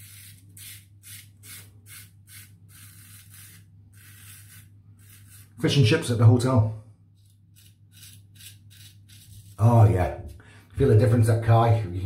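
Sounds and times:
razor scraping through stubble: 0:00.0 - 0:05.8, 0:07.2 - 0:10.4.

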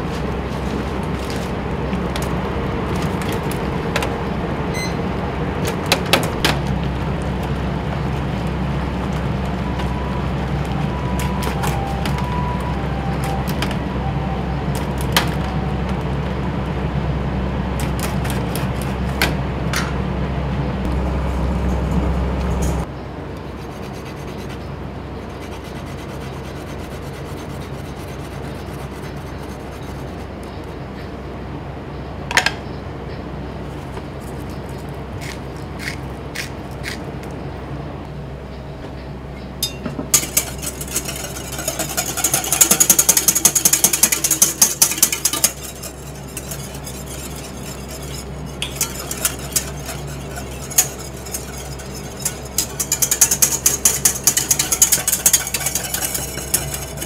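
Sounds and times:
burner and boiling water rumble: 0:00.0 - 0:36.3, 0:37.0 - 0:57.0
fan hum: 0:00.0 - 0:57.0
faint two-note tone: 0:09.9 - 0:14.7
metal strainer baskets clinking: 0:39.6 - 0:47.4, 0:48.0 - 0:57.0.

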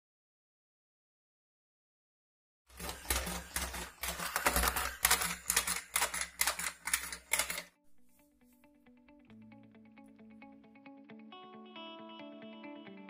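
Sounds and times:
motor and gear hum: 0:02.7 - 0:07.7
robot legs clattering on desk: 0:02.7 - 0:07.7.

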